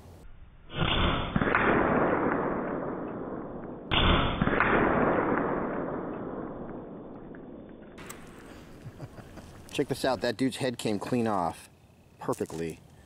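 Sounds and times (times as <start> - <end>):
slowed air rifle shots: 0.6 - 8.8.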